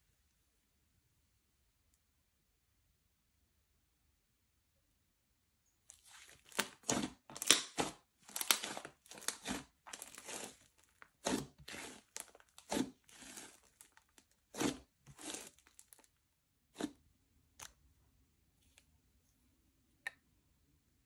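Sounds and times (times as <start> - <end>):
slime squishing and crackling: 5.9 - 16.2.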